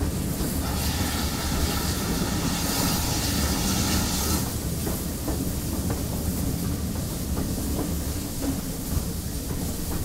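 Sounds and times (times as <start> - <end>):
steam hiss: 0.0 - 5.8
steam locomotive rumbling: 0.0 - 10.0.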